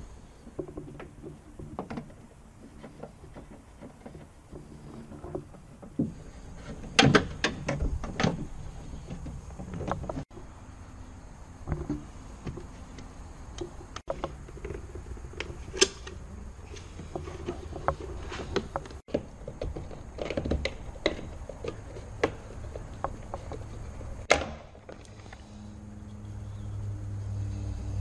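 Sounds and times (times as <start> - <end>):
sharp clicks and knocks: 11.6 - 25.4.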